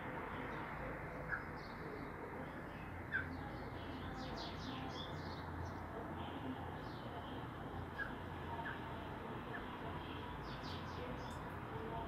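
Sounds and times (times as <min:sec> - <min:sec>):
steady background noise: 0:00.0 - 0:12.0
small birds chirping: 0:09.5 - 0:11.5.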